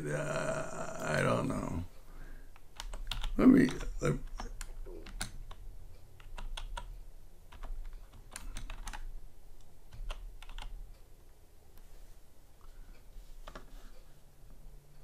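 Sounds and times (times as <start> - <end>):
computer keyboard key clicks: 2.6 - 5.6, 6.2 - 6.9, 7.5 - 9.1, 9.9 - 10.8.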